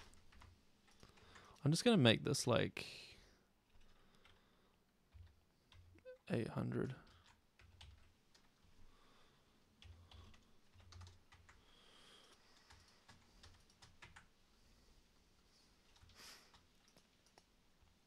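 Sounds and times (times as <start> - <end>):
faint keyboard keystrokes: 9.8 - 14.3, 15.8 - 17.5.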